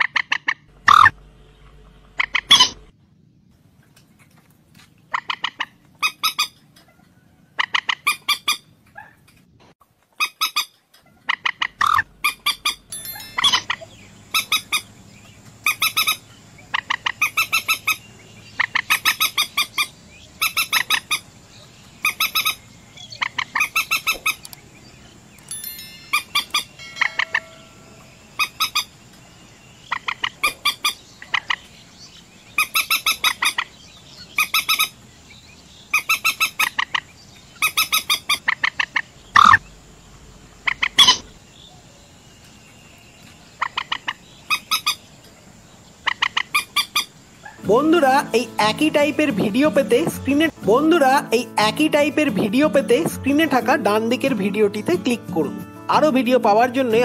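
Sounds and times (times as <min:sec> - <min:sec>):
moorhen calling: 0:00.0 - 0:02.9, 0:11.2 - 0:39.8, 0:40.6 - 0:41.4, 0:46.0 - 0:57.0.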